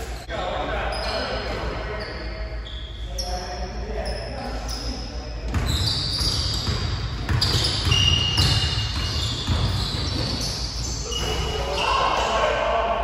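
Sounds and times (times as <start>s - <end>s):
basketballs bouncing on court: 5.5s - 11.7s.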